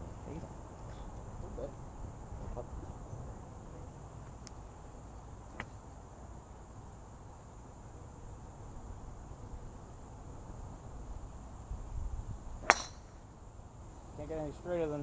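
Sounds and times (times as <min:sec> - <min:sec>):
golf club striking ball: 0:12.6 - 0:13.2.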